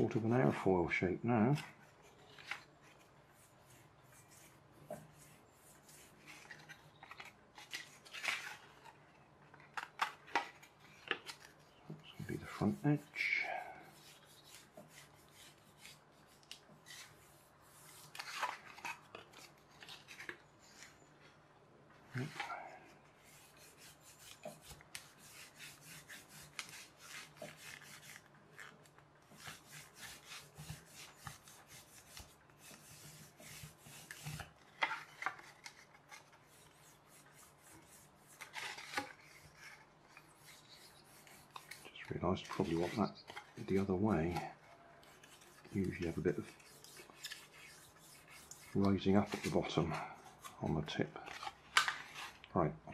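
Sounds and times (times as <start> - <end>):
pencil scraping polystyrene foam: 2.8 - 6.9, 11.5 - 18.8, 22.2 - 51.0.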